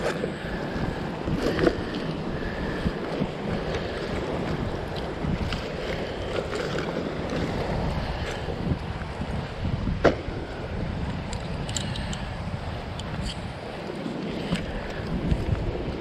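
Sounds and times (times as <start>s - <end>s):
wind rumbling on microphone: 0.0s - 16.0s.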